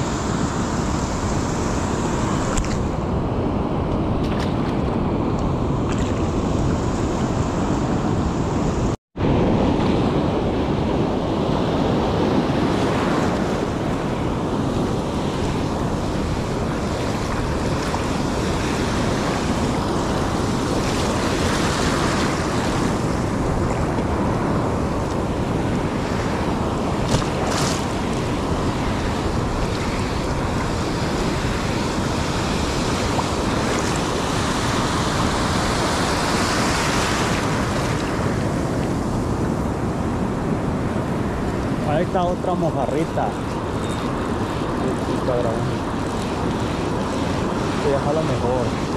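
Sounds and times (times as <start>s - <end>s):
ocean surf breaking: 0.0s - 48.9s
wind on microphone: 0.0s - 48.9s.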